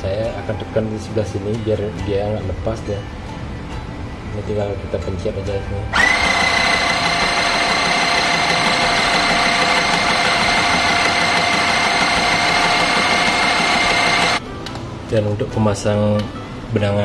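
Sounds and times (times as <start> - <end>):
sewing machine motor whining: 6.0 - 14.4.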